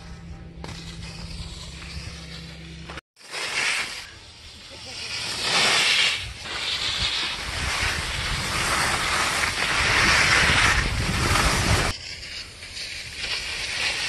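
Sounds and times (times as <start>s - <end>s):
skis scraping over snow: 0.0s - 14.0s
wind rushing over microphone: 6.2s - 12.0s.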